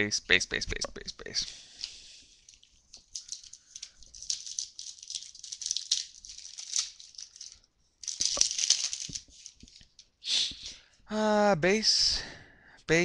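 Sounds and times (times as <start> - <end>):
cards crinkling and rustling: 1.8 - 10.1.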